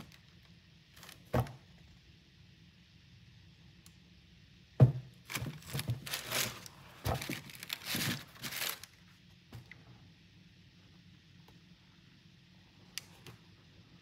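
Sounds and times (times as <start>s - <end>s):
tissue paper crinkling: 1.0s - 1.2s, 5.3s - 9.0s.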